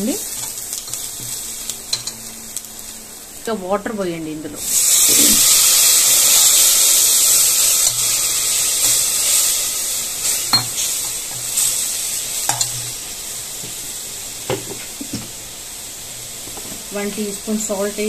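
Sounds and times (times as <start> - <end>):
water sizzling in hot oil: 0.0 - 18.0.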